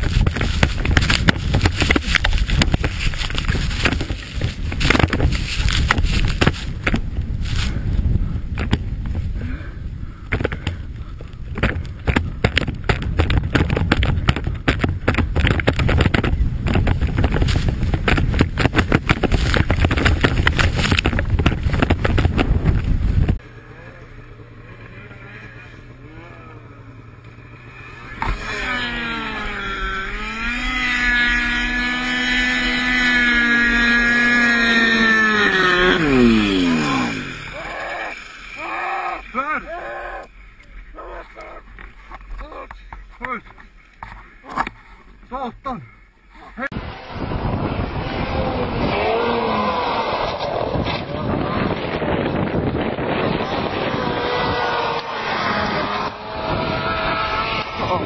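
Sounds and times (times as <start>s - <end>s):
snowmobile rumble with rattling knocks: 0.0s - 58.0s
snowmobile engine revving hard: 23.5s - 40.3s, 46.6s - 58.0s.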